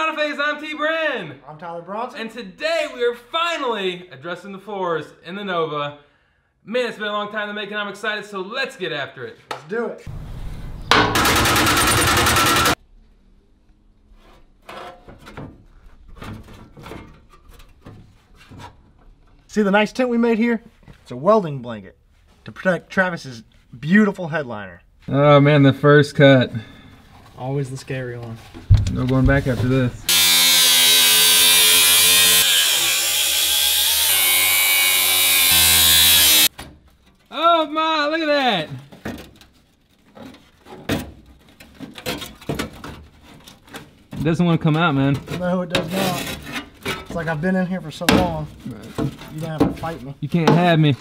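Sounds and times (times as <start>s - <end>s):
power shear cutting sheet steel: 11.1s - 12.8s, 30.1s - 36.5s
steel panel knocks and rubs: 28.6s - 30.0s.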